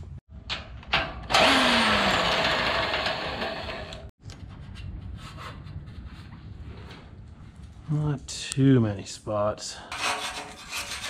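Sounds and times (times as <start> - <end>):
clicks and rubbing on metal: 9.9 - 11.0.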